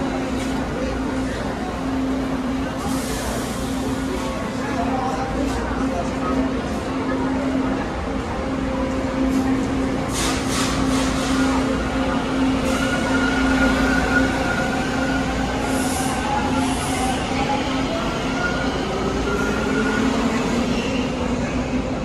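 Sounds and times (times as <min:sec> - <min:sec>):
subway train humming and whining: 0:00.0 - 0:22.0.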